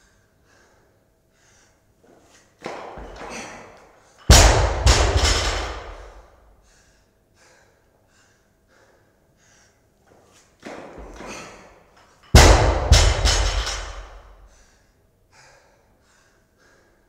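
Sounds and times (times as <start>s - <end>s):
barbell thudding on floor: 2.6s - 6.2s, 10.6s - 11.7s, 12.3s - 14.4s
weight plates rattling: 4.3s - 6.2s, 12.3s - 14.3s.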